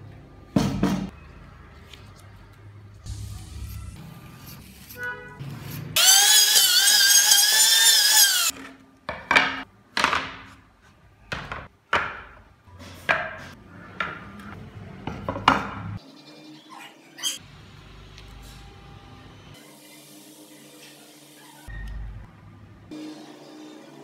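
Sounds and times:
power saw cutting wood: 5.8s - 8.5s.

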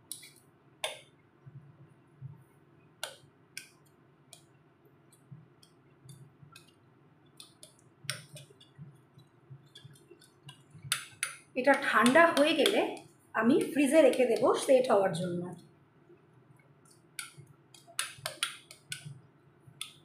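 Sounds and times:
metal spoon tapping glass bowl: 9.8s - 14.5s.

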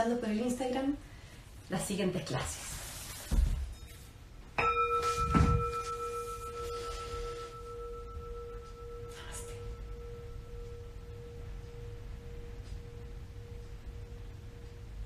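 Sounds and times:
soft rustle: 1.8s - 13.0s
singing bowl ringing: 3.7s - 15.0s.

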